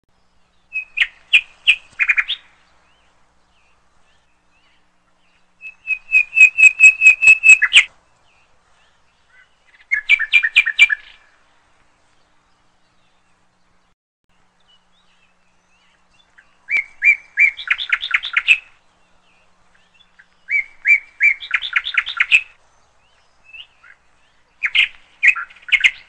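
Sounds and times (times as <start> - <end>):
partridge calling sharp chuk notes: 5.6 - 7.9.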